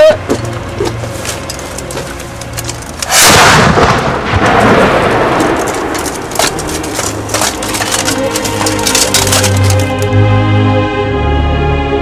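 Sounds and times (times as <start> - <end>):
cannon blast with rolling rumble: 3.0 - 6.4.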